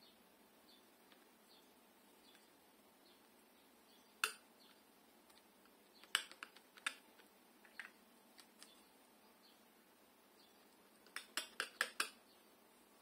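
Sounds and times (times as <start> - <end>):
palette knife clicking and tapping: 4.2 - 4.4, 11.1 - 12.2.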